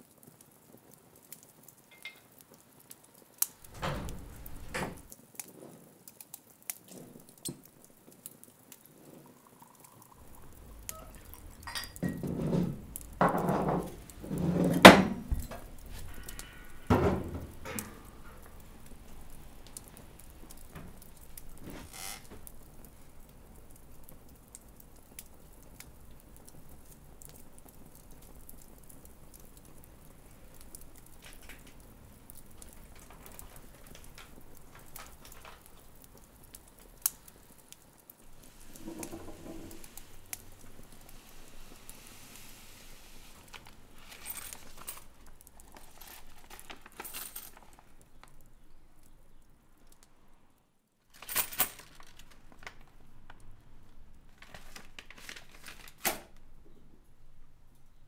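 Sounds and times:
small clicks and ticks: 0.0s - 4.4s, 5.0s - 11.7s, 17.6s - 39.2s.

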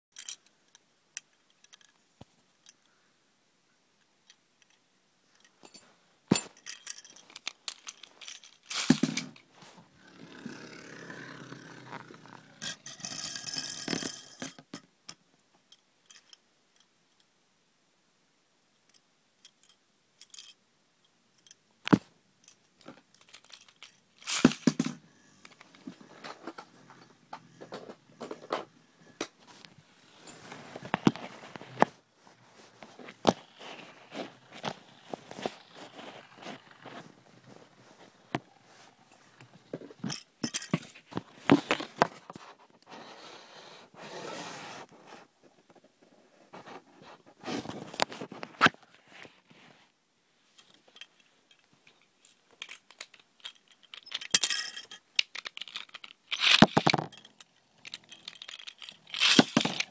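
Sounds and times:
plastic parts clicking and rattling: 0.1s - 3.0s, 4.2s - 9.8s, 11.8s - 16.9s, 18.9s - 20.6s, 21.4s - 29.7s, 32.8s - 37.6s, 39.4s - 42.4s, 50.6s - 59.9s
rustling and scraping: 5.4s - 14.8s, 22.8s - 49.9s, 50.5s - 59.9s.

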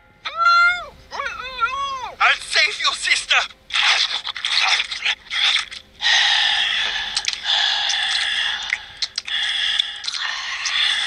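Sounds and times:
cartoon wet slurping: 3.7s - 6.2s, 7.2s - 11.0s.

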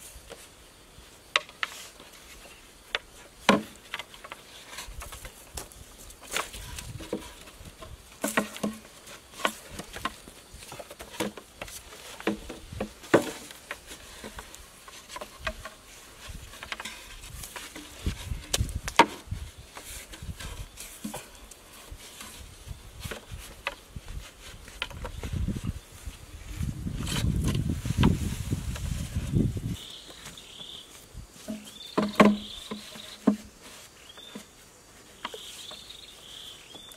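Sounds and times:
bamboo poles knocking: 1.3s - 2.2s, 2.8s - 25.4s, 31.4s - 34.5s.

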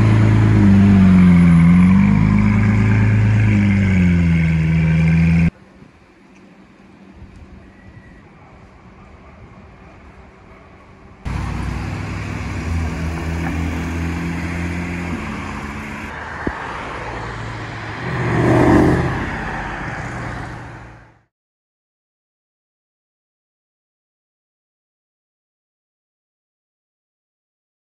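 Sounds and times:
sports car engine: 0.0s - 5.6s, 11.2s - 21.2s
quiet street sound: 0.0s - 21.3s
car passing close: 11.3s - 21.2s.

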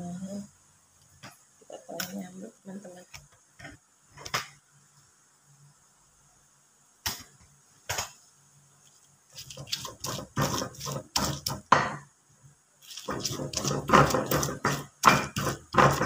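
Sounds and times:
pestle grinding in stone mortar: 9.3s - 11.7s, 12.8s - 16.0s
pestle knocks: 9.8s - 12.0s, 13.1s - 16.0s.

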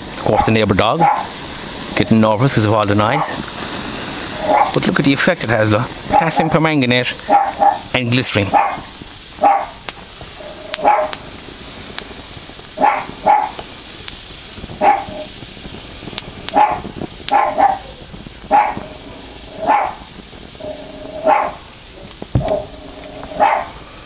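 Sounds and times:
dog barking: 0.3s - 1.3s, 4.4s - 4.8s, 7.3s - 7.9s, 8.5s - 9.8s, 10.7s - 11.2s, 12.8s - 13.5s, 14.8s - 15.3s, 16.5s - 17.9s, 18.5s - 19.0s, 19.6s - 20.0s, 21.2s - 21.6s, 23.3s - 23.8s.

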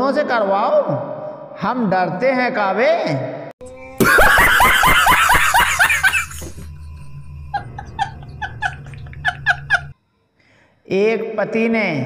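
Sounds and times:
hearty laughing: 4.0s - 9.9s.

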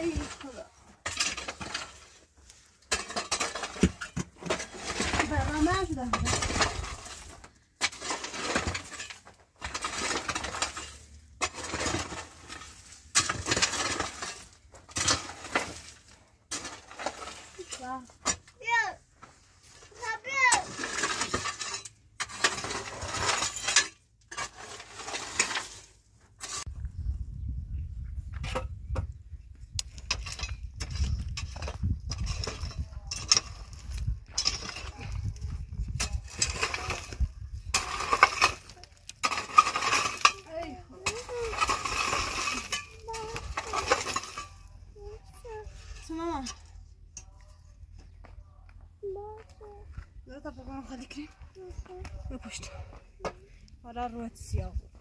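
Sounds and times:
shovel scraping stony dirt: 0.0s - 26.8s, 29.8s - 47.4s
gravel clinking: 28.3s - 53.8s.

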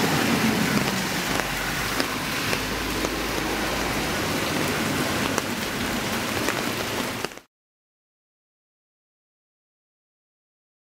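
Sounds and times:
raindrops ticking: 0.0s - 7.5s
steady rain hiss: 0.0s - 7.5s.

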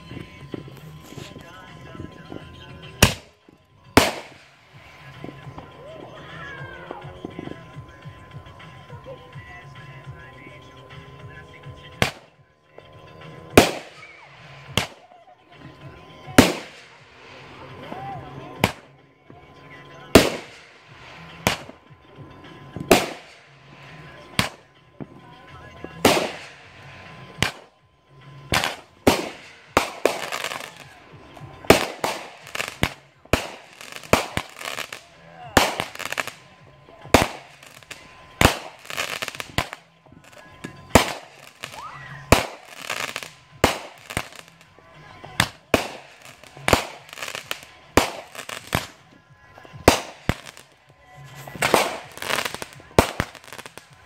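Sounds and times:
crackling hiss of sparks: 0.0s - 3.4s, 15.8s - 18.8s, 19.9s - 24.6s, 25.3s - 49.1s, 49.8s - 54.0s
fireworks bursting: 0.0s - 54.0s.

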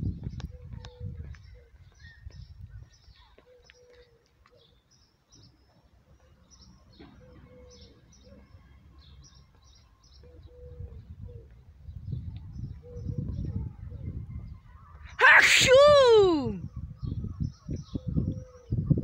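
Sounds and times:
small birds chirping: 0.0s - 15.1s.

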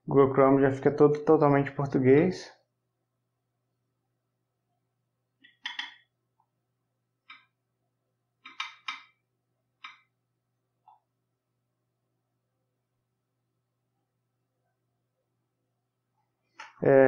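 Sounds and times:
touchscreen typing taps: 5.4s - 6.0s, 8.4s - 9.2s.

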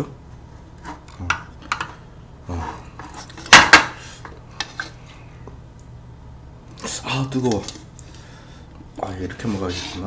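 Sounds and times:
wooden spoon scraping metal pan: 9.3s - 10.0s.

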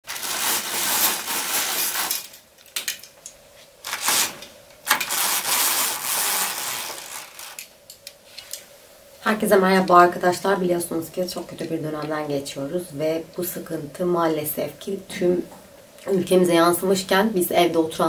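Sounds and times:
fabric roller blind sliding: 0.0s - 2.4s, 3.9s - 7.7s
roller blind clicks: 0.0s - 3.1s, 3.8s - 8.6s.

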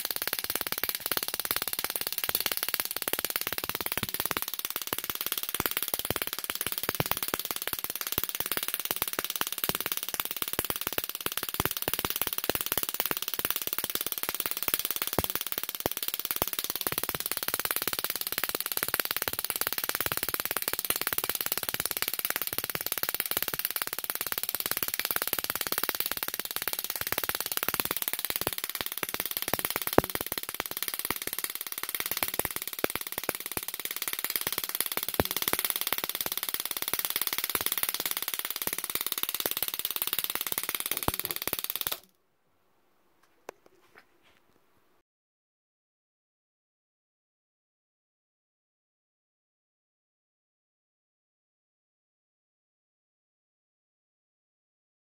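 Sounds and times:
hissing crackle with rapid clicks: 0.0s - 42.1s.

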